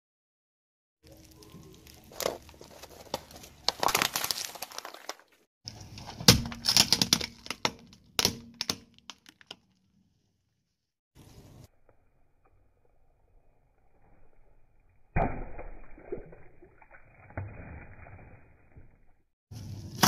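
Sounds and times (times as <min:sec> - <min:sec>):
tyre crushing crunchy snacks: 0:01.0 - 0:09.8.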